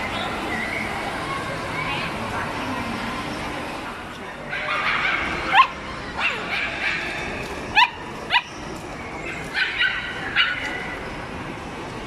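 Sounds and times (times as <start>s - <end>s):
background hubbub: 0.0s - 12.0s
puppies yipping: 4.5s - 11.0s.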